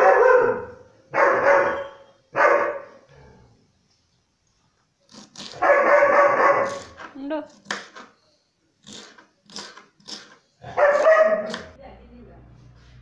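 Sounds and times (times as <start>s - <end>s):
dog barking: 0.0s - 3.0s, 5.6s - 7.0s, 10.6s - 11.7s.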